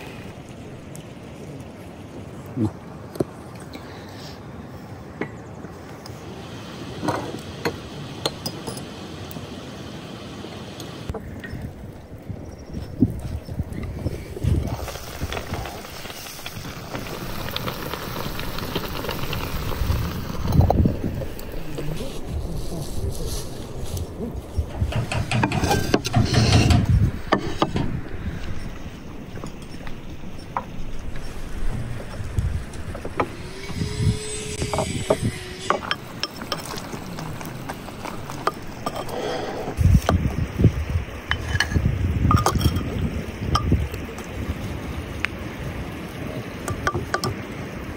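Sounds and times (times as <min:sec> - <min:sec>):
stew bubbling in a pot: 0:11.1 - 0:22.5, 0:35.1 - 0:47.9
metal spoon scraping earthenware pot: 0:24.7 - 0:27.8.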